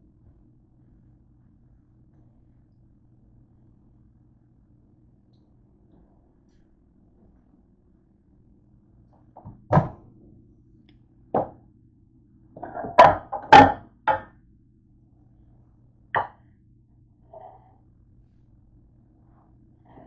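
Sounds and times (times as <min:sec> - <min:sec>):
plate knocking and clunking: 0:12.6 - 0:14.3, 0:16.2 - 0:16.4.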